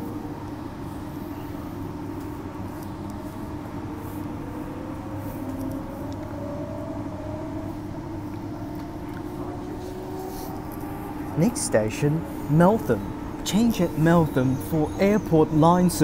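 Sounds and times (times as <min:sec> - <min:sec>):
train motor whine: 0:03.8 - 0:16.0.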